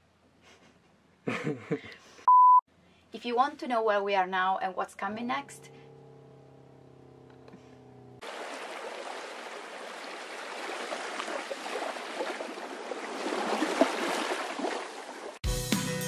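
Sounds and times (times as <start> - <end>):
running water splashing: 8.2 - 15.4.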